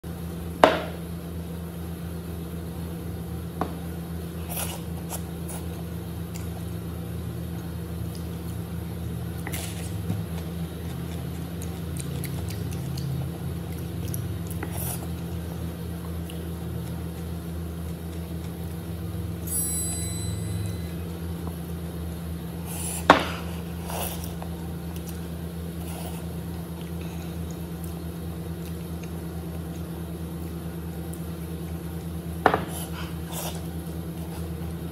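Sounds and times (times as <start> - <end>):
steady low hum: 0.0 - 34.9
wet eating noises: 7.6 - 19.3, 22.6 - 34.9.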